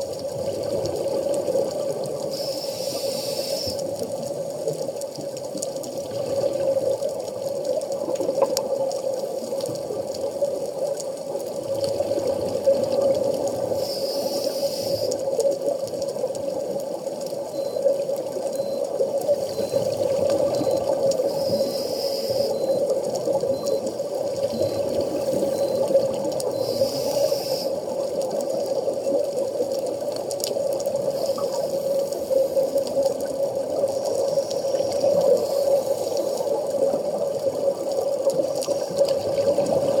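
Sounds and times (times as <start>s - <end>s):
muffled underwater hum: 0.6s - 4.1s, 11.8s - 40.0s.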